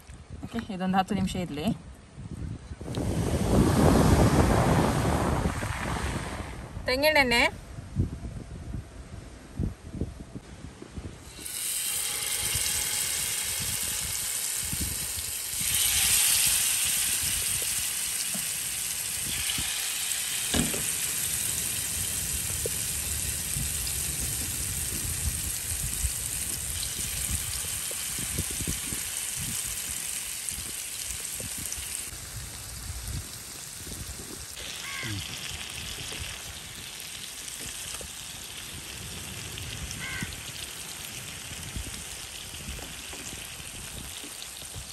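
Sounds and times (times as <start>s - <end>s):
fish sizzling in oil: 11.2s - 44.9s.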